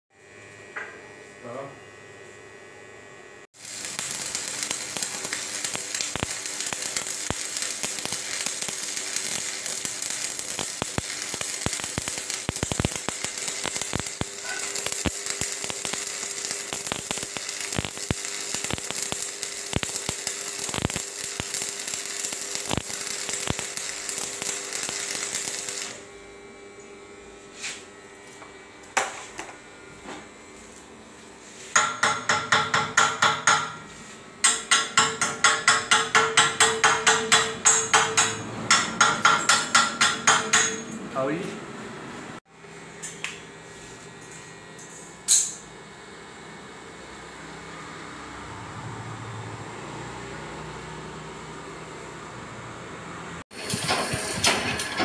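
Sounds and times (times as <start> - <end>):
welding arc crackling and popping: 3.6 - 26.2, 34.4 - 40.8, 53.5 - 55.0.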